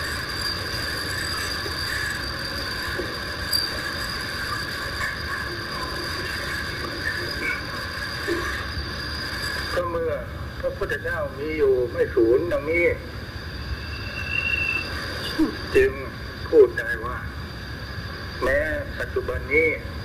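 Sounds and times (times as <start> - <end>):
even high tones droning: 0.0 - 20.0
hiss: 12.7 - 16.4.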